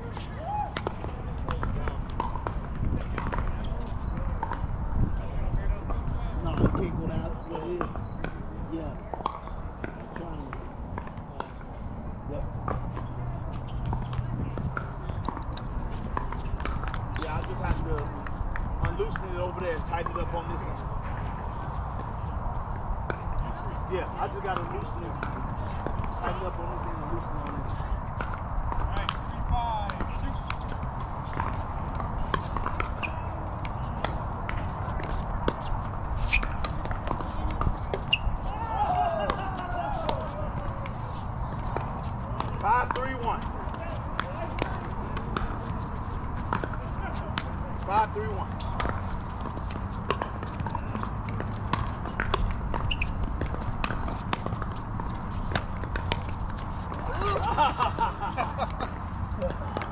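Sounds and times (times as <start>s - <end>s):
paddles hitting ball: 0.0s - 4.6s, 28.2s - 59.9s
ball bouncing on hard court: 0.7s - 4.6s, 29.8s - 47.5s, 48.1s - 59.9s
shuffling footsteps: 24.3s - 59.9s
voices calling out: 36.0s - 53.1s, 55.4s - 59.9s.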